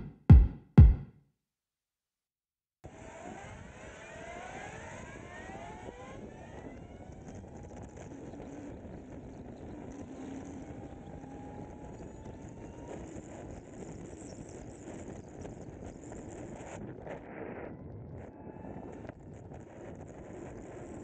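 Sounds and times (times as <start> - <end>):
electric motorcycle whine: 2.9 - 16.1.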